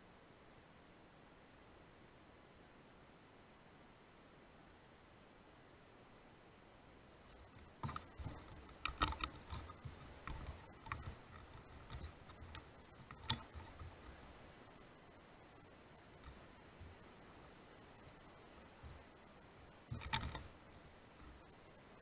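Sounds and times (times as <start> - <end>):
rifle handling knocks and rustles: 7.8 - 14.3.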